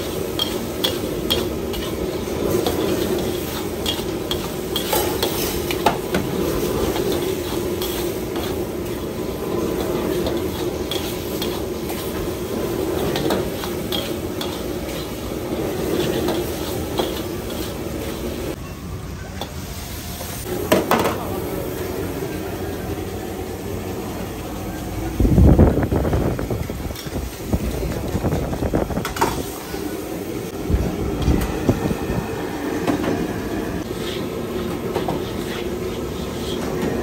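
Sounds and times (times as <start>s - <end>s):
food sizzling: 0.0s - 18.6s
ladle scraping a wok: 0.0s - 18.6s, 33.8s - 37.0s.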